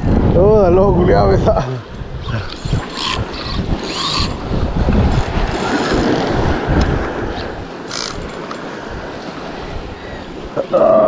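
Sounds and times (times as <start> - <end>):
wind buffeting microphone: 0.0 - 11.0
waves washing on rocks: 2.6 - 11.0.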